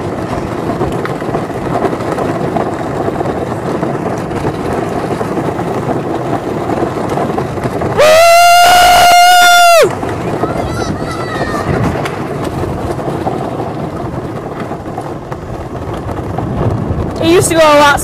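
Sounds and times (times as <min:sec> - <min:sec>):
toy car wheels rolling on asphalt: 0:00.0 - 0:18.0
loud held yell: 0:08.0 - 0:11.8.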